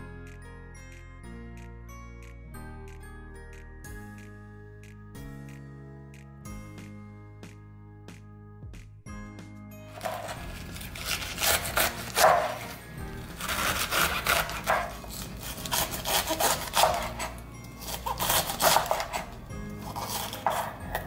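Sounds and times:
background music: 0.0s - 21.0s
knife slicing cabbage on board: 10.0s - 21.0s.

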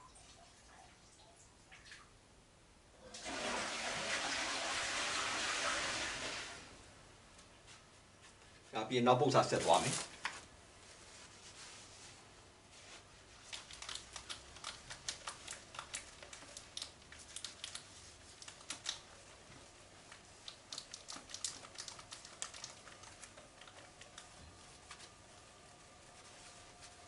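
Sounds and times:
whiteboard being wiped: 10.8s - 13.7s, 24.0s - 27.0s.

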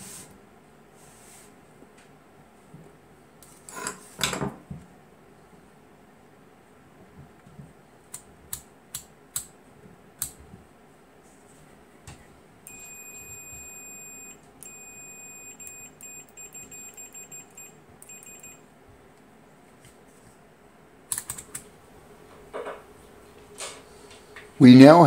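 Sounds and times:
multimeter continuity beeps: 12.7s - 18.6s.

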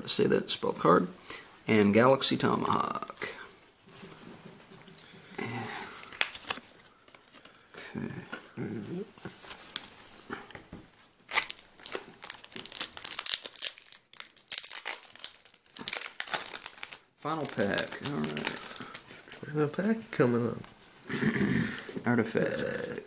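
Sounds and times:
soft handling sounds: 3.6s - 11.2s
foil wrapper crinkling and tearing: 11.3s - 19.6s.

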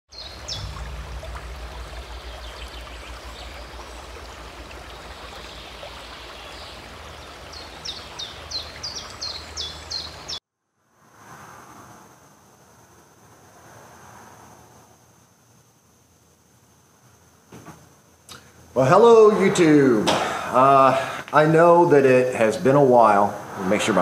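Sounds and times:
bird chirping: 0.1s - 10.4s
running water: 0.1s - 10.4s
low rumble: 0.2s - 7.4s.

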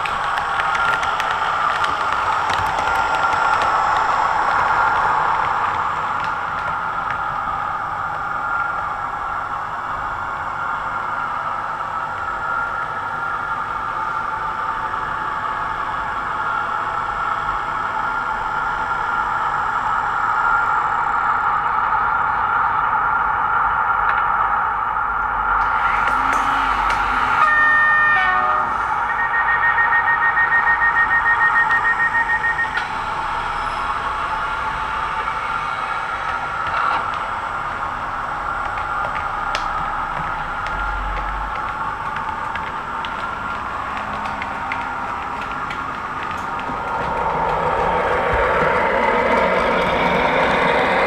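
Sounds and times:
model train drone: 0.0s - 29.3s, 46.4s - 51.0s
diesel engine sound from loudspeaker: 25.6s - 29.1s
rapid electronic beeping: 26.2s - 34.0s.

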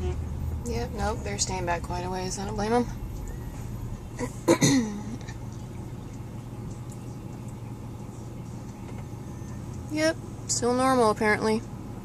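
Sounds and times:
diesel engine drone: 0.0s - 12.0s
person clearing throat: 4.2s - 5.2s.

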